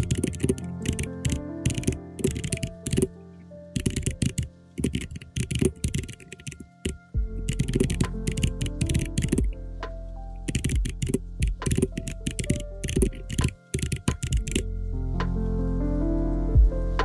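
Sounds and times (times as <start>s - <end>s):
keyboard and mouse clicks: 0.0s - 3.1s, 3.8s - 9.6s, 10.4s - 14.7s
background music: 0.0s - 17.0s.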